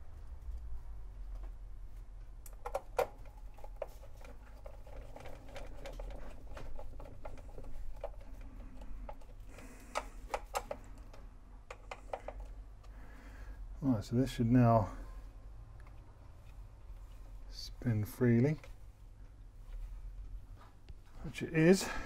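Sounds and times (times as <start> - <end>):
faint low hum: 0.0 - 22.0
small clicks and taps of handling parts: 1.3 - 13.0, 15.8 - 17.4.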